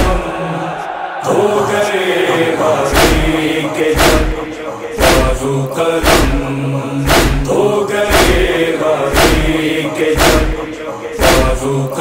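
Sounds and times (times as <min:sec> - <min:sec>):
chorus chanting a wordless drone: 0:00.0 - 0:12.0
deep steady drum beat: 0:04.0 - 0:04.4, 0:06.0 - 0:07.5, 0:09.1 - 0:09.6, 0:10.2 - 0:10.6.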